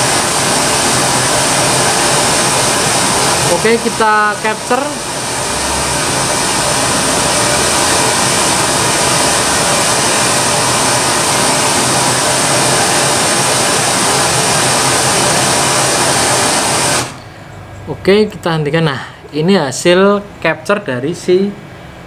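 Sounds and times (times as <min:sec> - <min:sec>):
pink noise from loudspeaker: 0:00.0 - 0:17.2.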